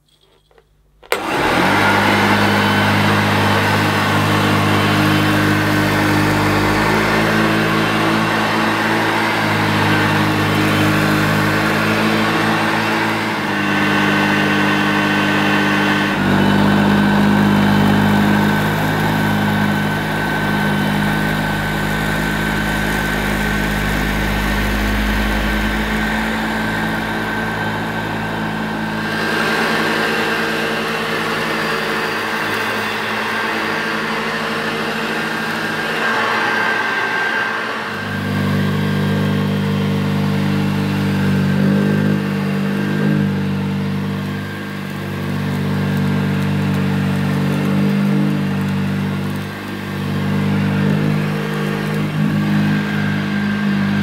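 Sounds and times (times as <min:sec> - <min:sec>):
vacuum cleaner motor humming: 0:01.0 - 0:54.0
beater brush sweeping carpet: 0:01.1 - 0:22.2.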